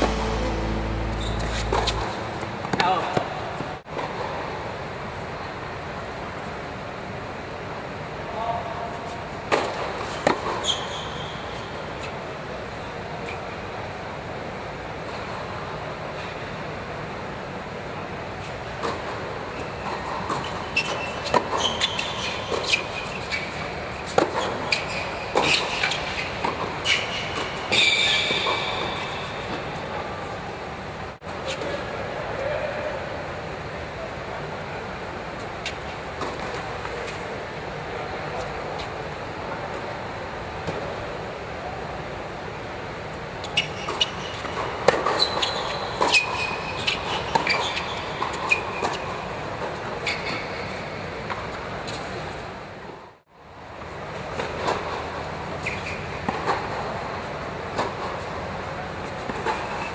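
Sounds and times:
racket striking tennis ball: 0:00.0 - 0:03.8
background noise: 0:00.0 - 0:59.9
steady background noise: 0:00.0 - 0:59.9
shoes squeaking on court: 0:10.1 - 0:11.4, 0:19.5 - 0:29.5, 0:43.4 - 0:52.5, 0:54.0 - 0:56.8.

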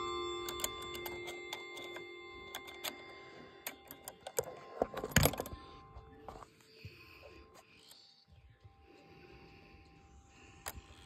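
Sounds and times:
clock ticks and clicks: 0:00.0 - 0:05.7
clock chime ringing: 0:00.0 - 0:11.0.

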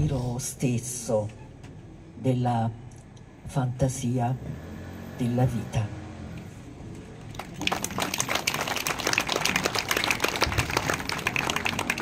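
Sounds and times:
audience applauding: 0:07.3 - 0:12.0.

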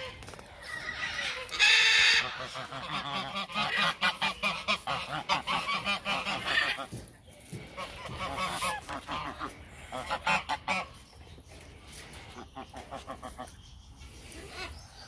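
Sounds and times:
goose honking: 0:00.0 - 0:06.9, 0:07.8 - 0:11.0, 0:12.3 - 0:13.5.

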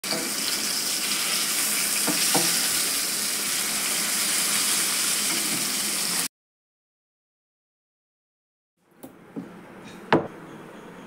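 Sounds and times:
fish sizzling in oil: 0:00.0 - 0:06.3.

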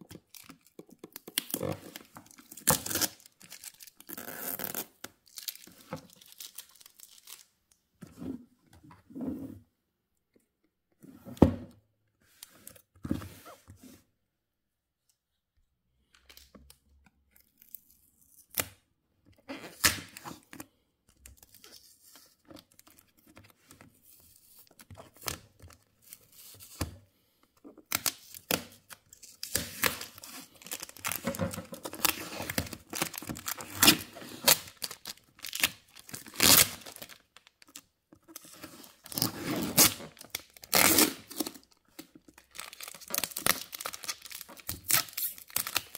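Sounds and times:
tape crinkling and rustling: 0:00.0 - 0:07.6, 0:27.7 - 0:45.9
packing tape ripping off cardboard: 0:01.2 - 0:05.5, 0:27.9 - 0:37.2, 0:38.5 - 0:41.7, 0:42.5 - 0:45.9.

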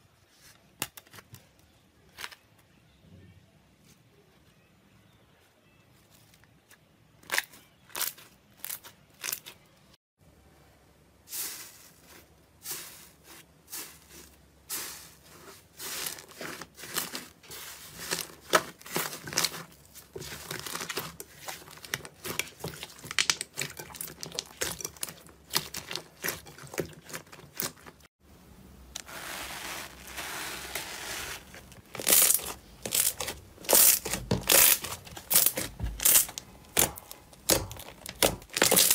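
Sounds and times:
slime crackling and popping: 0:31.9 - 0:38.9.

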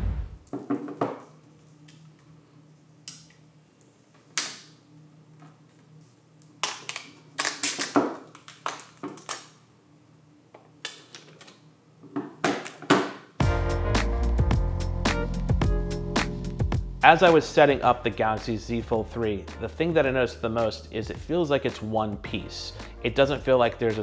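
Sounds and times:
plastic film peeling and crinkling: 0:05.9 - 0:09.6.

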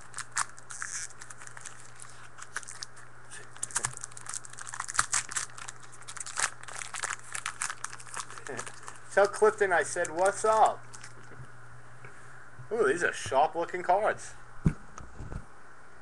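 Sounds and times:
wrappers crinkling and tearing: 0:00.0 - 0:11.3.

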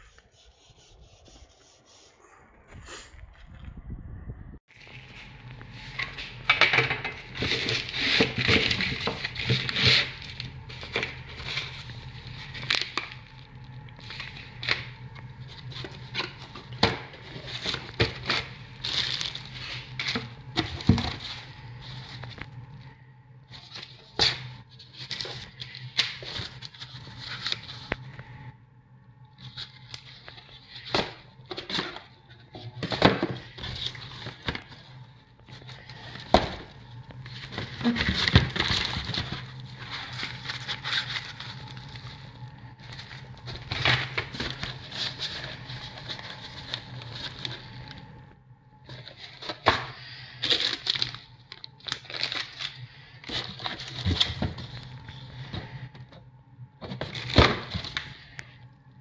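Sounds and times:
low steady hum: 0:00.0 - 0:59.0
plastic bags crinkling: 0:07.2 - 0:22.8, 0:29.8 - 0:48.2, 0:50.4 - 0:56.0.

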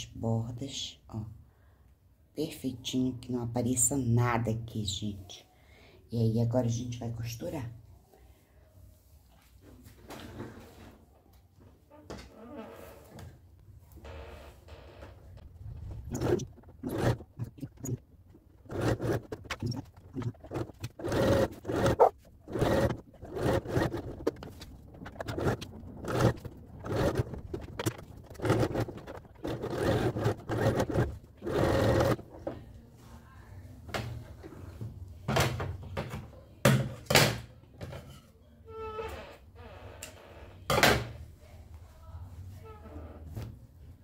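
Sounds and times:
sewing machine stitching: 0:15.6 - 0:32.2.

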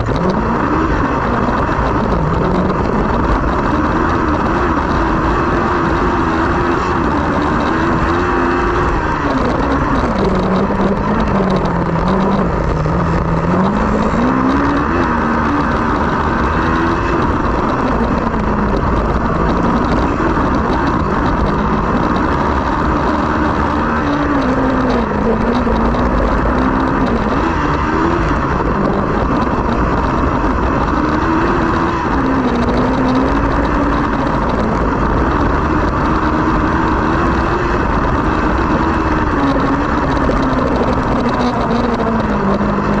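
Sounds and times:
race car engine revving: 0:00.0 - 0:43.0
rumble: 0:00.0 - 0:43.0
wind noise: 0:00.0 - 0:43.0.

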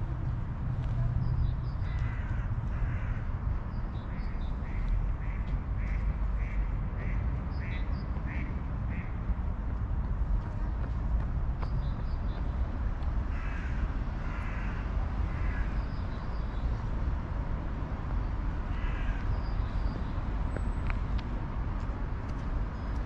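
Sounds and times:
crows cawing: 0:01.8 - 0:03.3, 0:13.3 - 0:15.7, 0:18.7 - 0:19.2.

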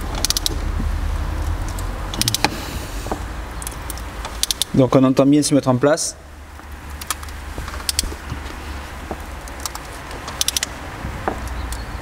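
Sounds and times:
torque wrench clicks: 0:00.2 - 0:00.6, 0:01.4 - 0:02.6, 0:03.6 - 0:04.8, 0:09.4 - 0:10.8.

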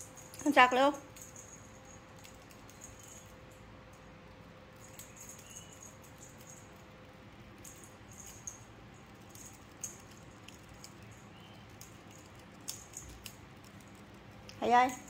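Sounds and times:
light clicks and ticks on tile: 0:09.3 - 0:14.7.

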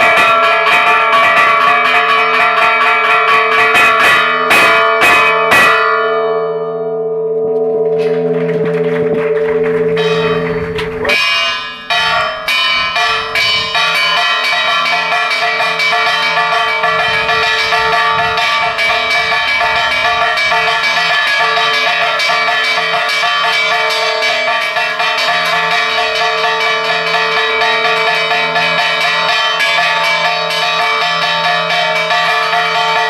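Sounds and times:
church bells pealing: 0:00.0 - 0:33.0.

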